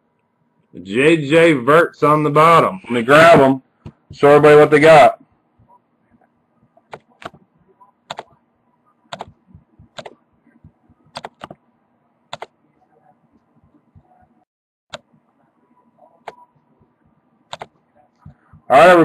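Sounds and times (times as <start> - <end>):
computer keys clicking: 8.1 - 8.4, 9.1 - 11.6, 12.3 - 12.6, 17.5 - 18.7.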